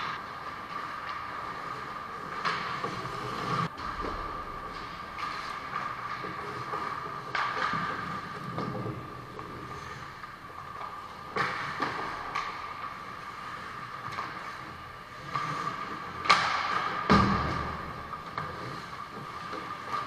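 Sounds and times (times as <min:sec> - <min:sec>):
steady high hum: 0:00.0 - 0:08.4
hockey sticks and puck knocking: 0:00.0 - 0:20.0
skates scraping on ice: 0:00.0 - 0:20.0.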